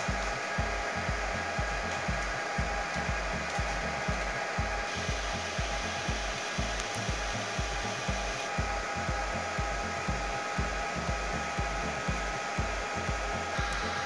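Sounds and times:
background music with bass line: 0:00.0 - 0:14.0
steady rushing hiss: 0:00.0 - 0:14.0.

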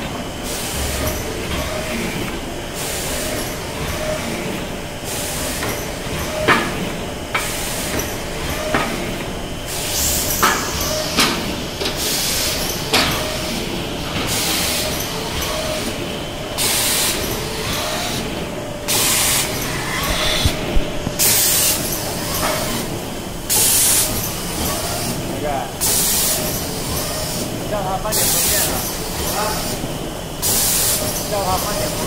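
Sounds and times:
compressed-air hiss: 0:16.6 - 0:18.2, 0:18.9 - 0:25.2, 0:25.8 - 0:27.5.

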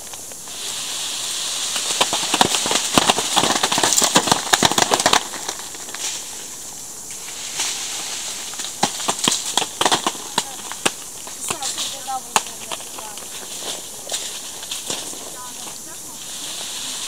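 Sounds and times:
leaves rustling: 0:00.0 - 0:17.0
fruit pattering onto plastic tarp: 0:01.7 - 0:06.3, 0:07.2 - 0:16.0.

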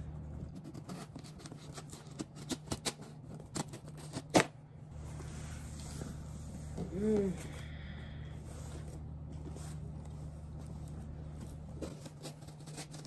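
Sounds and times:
scissors scraping packing tape: 0:00.6 - 0:04.5, 0:11.8 - 0:13.0.

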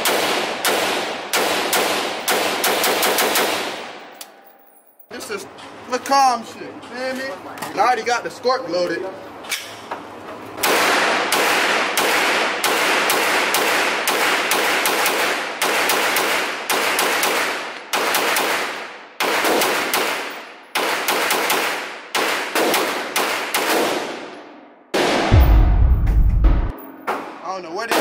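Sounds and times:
gunshots echoing indoors: 0:00.0 - 0:04.1, 0:10.6 - 0:28.0.

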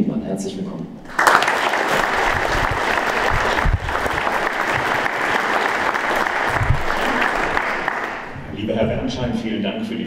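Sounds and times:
audience applauding: 0:01.1 - 0:08.5.

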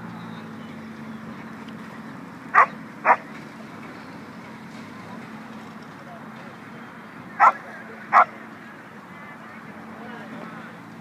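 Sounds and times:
low background murmur: 0:00.0 - 0:11.0
dog barking: 0:02.6 - 0:03.2, 0:07.4 - 0:08.3.

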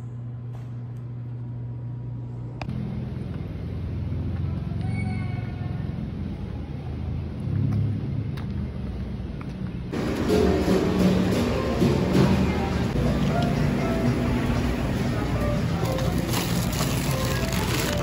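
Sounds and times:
steady low hum: 0:00.0 - 0:04.5
street traffic rumble: 0:00.2 - 0:18.0
background music: 0:10.0 - 0:18.0.

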